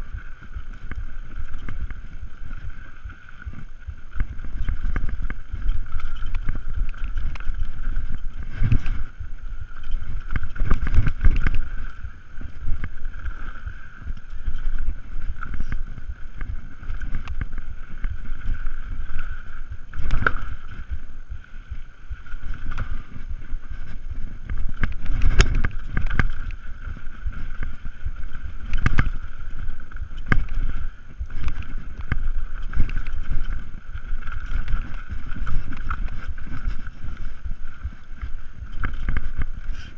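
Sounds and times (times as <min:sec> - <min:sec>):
bike knocking and rattling: 0:00.0 - 0:39.9
bike tyres running over dirt: 0:00.0 - 0:39.9
wind rushing on microphone: 0:00.0 - 0:39.9.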